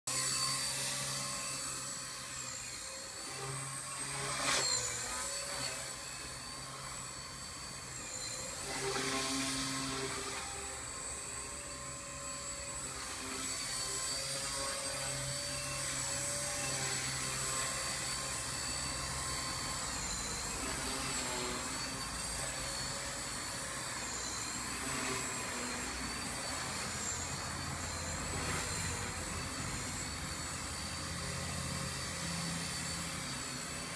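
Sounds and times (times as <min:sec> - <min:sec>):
rc helicopter motor whine: 0:00.1 - 0:33.9.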